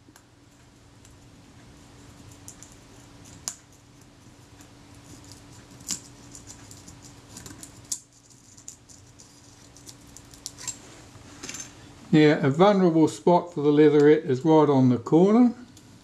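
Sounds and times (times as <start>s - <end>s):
blade prying covering crackling: 5.0s - 10.8s.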